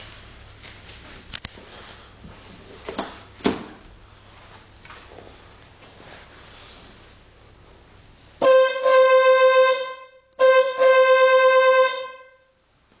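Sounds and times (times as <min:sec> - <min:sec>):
car horn honking: 0:08.4 - 0:12.6.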